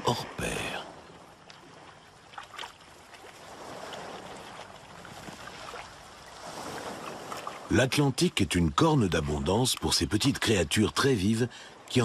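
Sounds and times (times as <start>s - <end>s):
sea water washing on rocks: 1.6s - 7.8s.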